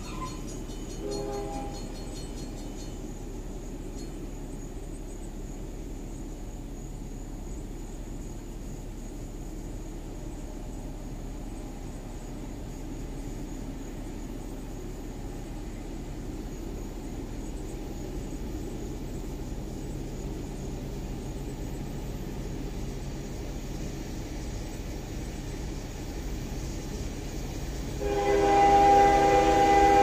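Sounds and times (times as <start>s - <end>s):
freight train locomotive rumble: 0.0s - 30.0s
locomotive air horn chord: 1.0s - 1.9s, 28.0s - 30.0s.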